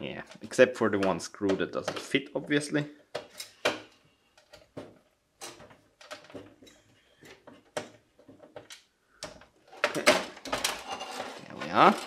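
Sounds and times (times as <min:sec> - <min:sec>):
metal parts clicking and scraping: 0:03.2 - 0:04.7, 0:05.4 - 0:12.0.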